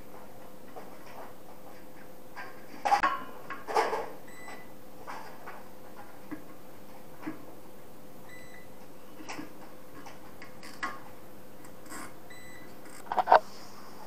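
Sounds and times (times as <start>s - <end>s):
faint steady hum: 0.0s - 14.0s
cables and tools clicking: 9.2s - 13.4s.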